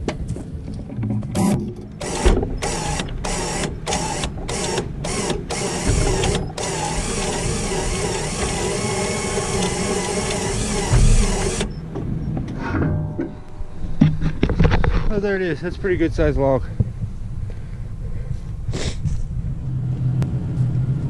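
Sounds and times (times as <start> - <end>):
electric winch motor whine: 1.3 - 11.9.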